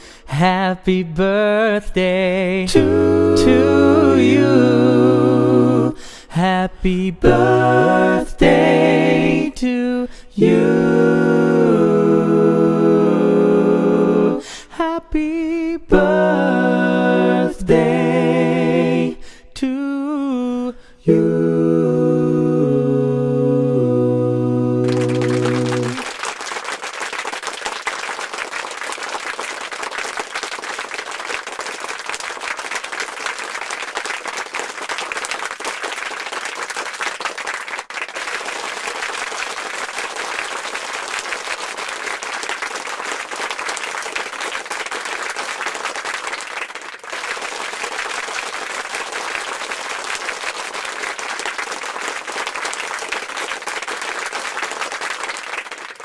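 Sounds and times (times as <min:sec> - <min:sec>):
crowd applauding: 0:24.8 - 0:56.0.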